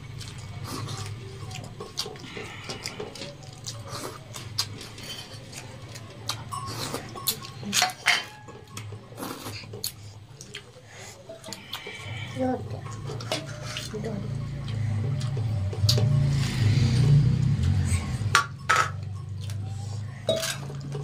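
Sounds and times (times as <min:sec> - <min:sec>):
chewing: 0:00.0 - 0:21.0
fingers working food on plates: 0:00.1 - 0:21.0
metal plates tapping and clinking: 0:06.5 - 0:09.2, 0:18.3 - 0:19.4, 0:20.2 - 0:21.0.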